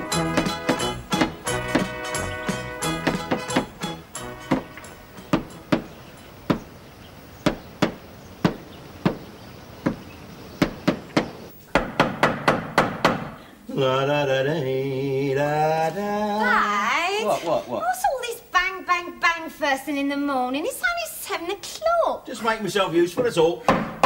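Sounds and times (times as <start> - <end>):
hammer blows against wall: 0.0 - 6.7.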